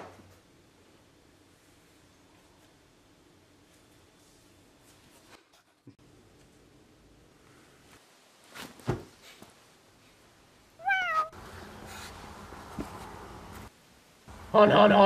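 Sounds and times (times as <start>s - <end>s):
low hum and hiss: 0.0s - 5.4s, 6.0s - 15.0s
cat meowing: 10.8s - 11.4s.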